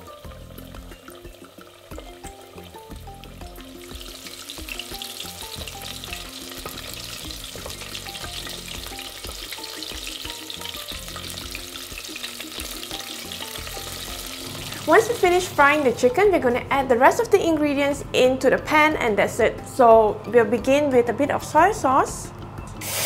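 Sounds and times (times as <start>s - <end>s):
chicken sizzling in hot oil: 0.0s - 15.9s, 22.8s - 23.0s.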